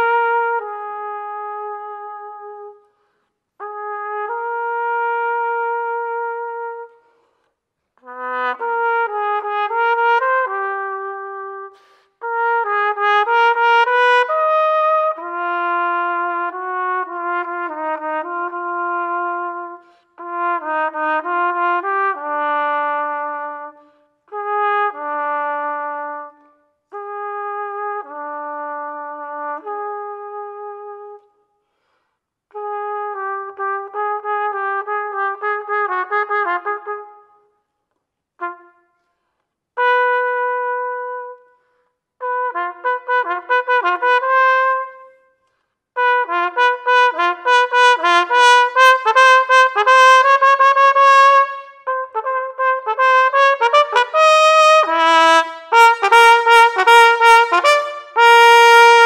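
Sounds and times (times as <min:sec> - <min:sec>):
solo trumpet playing: 0:00.0 - 0:07.2, 0:08.0 - 0:31.3, 0:32.5 - 0:37.6, 0:38.4 - 0:39.1, 0:39.8 - 0:45.4, 0:46.0 - 0:59.0.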